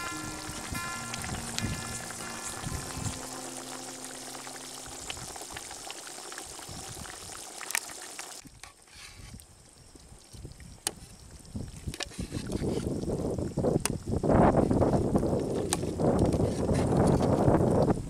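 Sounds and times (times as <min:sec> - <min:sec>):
background music: 0:00.0 - 0:05.7
curry bubbling in a pot: 0:00.0 - 0:08.4.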